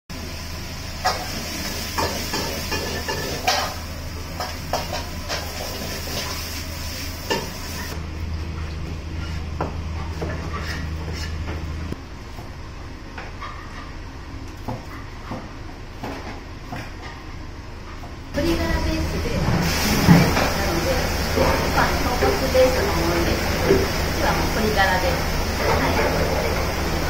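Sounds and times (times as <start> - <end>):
food sizzling in a wok: 0.1 - 8.0, 18.4 - 27.0
gas burner rumble: 0.1 - 13.3, 17.3 - 27.0.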